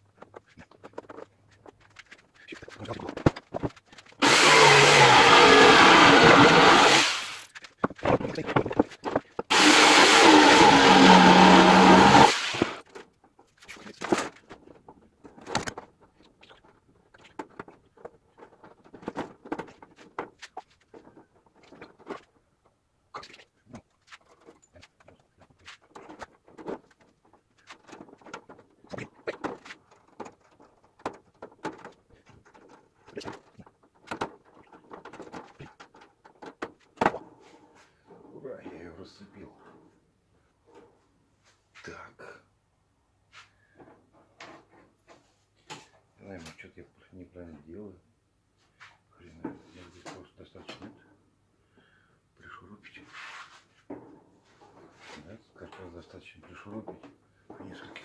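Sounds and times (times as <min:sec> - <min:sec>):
power tool running: 0:04.2 - 0:07.5, 0:09.5 - 0:12.8.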